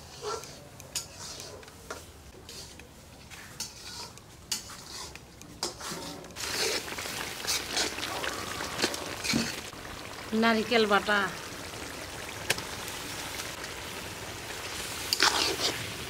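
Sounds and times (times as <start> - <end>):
utensil scraping a pan: 0.0 - 9.7, 15.1 - 15.9
frying sizzle: 3.3 - 16.0.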